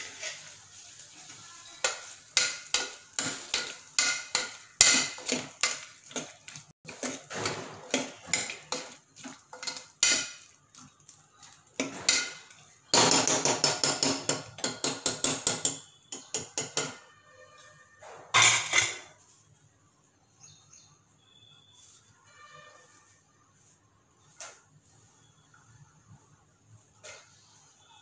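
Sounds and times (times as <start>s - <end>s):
metal spoon stirring in a pot: 0.0s - 17.6s
spoon clanking against pot: 1.8s - 10.9s, 11.8s - 17.0s.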